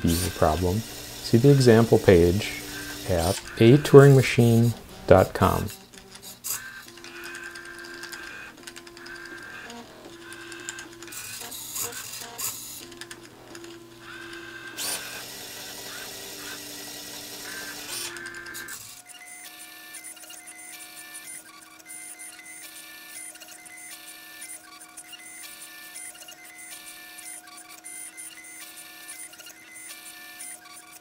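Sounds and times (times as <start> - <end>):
motors whining: 0.0 - 31.0.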